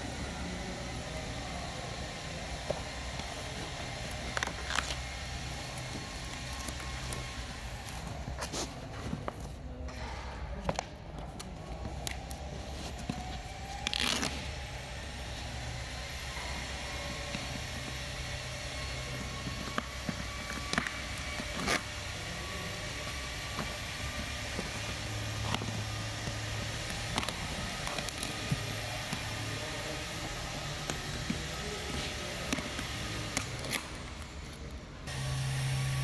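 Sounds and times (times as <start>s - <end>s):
cutting plotter machinery humming: 35.1s - 36.0s.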